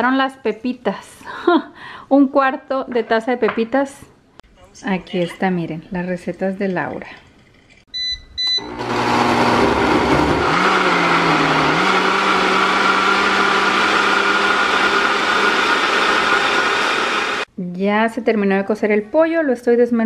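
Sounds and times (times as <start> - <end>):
short beeps: 7.9 - 8.7
blender motor running: 8.6 - 17.5.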